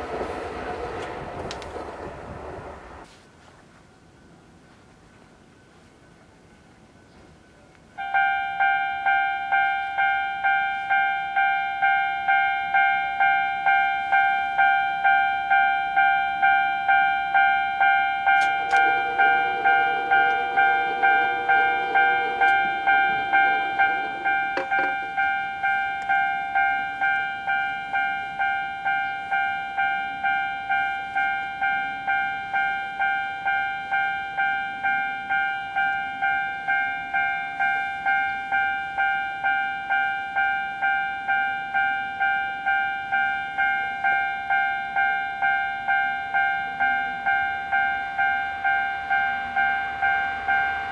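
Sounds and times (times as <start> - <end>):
rumbling noise: 0.0 - 3.0
level crossing warning bell: 8.0 - 50.9.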